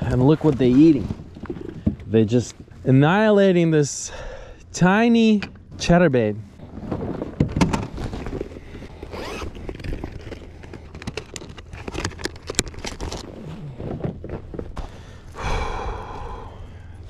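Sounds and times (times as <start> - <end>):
fishing gear clicks and scrapes: 8.1 - 13.6.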